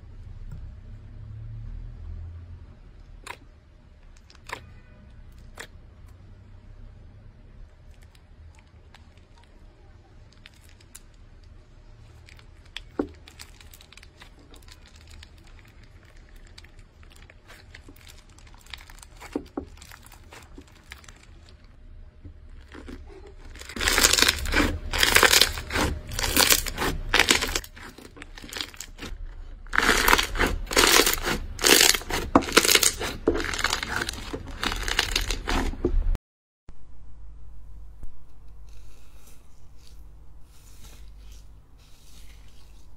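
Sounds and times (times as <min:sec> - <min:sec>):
slime squishing: 0:03.0 - 0:06.3, 0:07.5 - 0:36.2, 0:38.2 - 0:42.9
foam beads crackling and popping: 0:08.8 - 0:21.8, 0:22.5 - 0:35.9.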